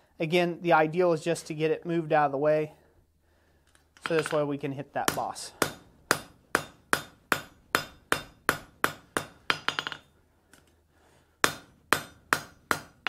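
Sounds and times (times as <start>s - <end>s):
hammer striking steel on anvil: 5.1s - 10.1s, 11.4s - 13.0s.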